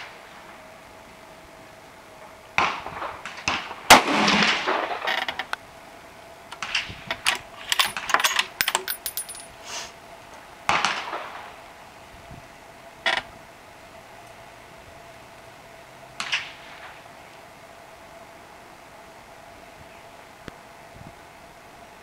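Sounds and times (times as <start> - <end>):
other gunshots: 2.6 - 5.0
rifle shot: 2.6 - 5.0
brass case clinking: 7.6 - 9.5.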